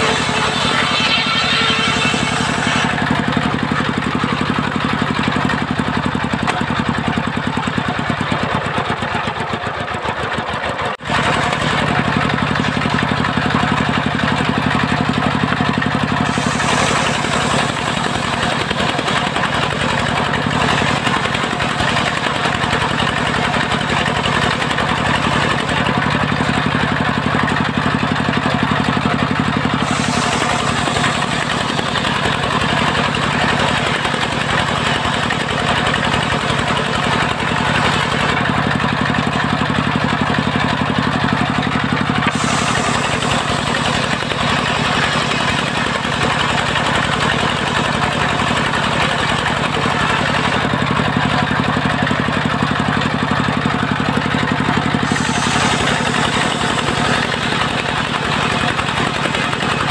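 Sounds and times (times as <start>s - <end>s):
circular saw blade ripping timber: 0.0s - 4.4s
engine running steadily: 0.0s - 59.9s.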